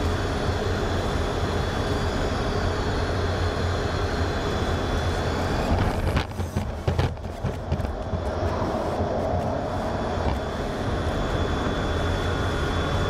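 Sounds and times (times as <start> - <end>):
faint high whine: 0.0 - 13.0
jet engines running: 0.0 - 13.0
rush of air: 8.1 - 11.4.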